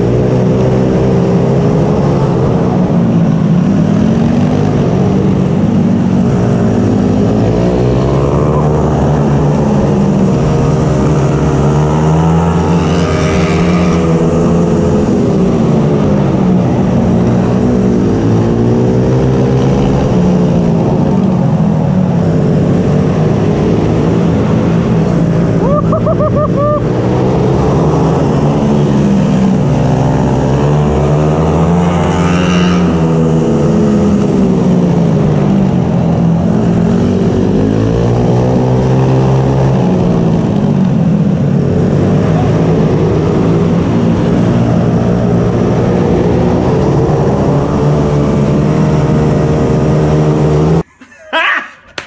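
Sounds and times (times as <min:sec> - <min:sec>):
small engine revving: 0:06.4 - 0:21.6.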